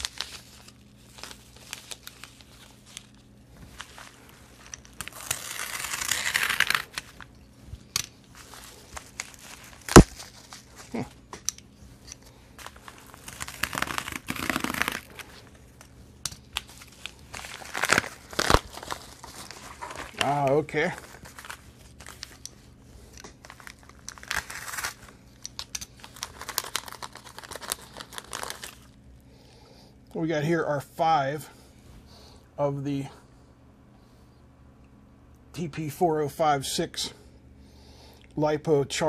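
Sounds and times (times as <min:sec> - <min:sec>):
padded envelope crinkling and tearing: 0:00.0 - 0:11.2, 0:12.3 - 0:29.0.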